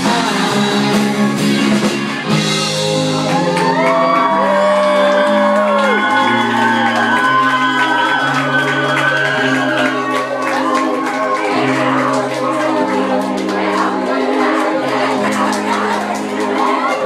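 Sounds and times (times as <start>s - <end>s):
live rock band playing: 0.0s - 17.0s
voices singing held notes: 11.0s - 17.0s.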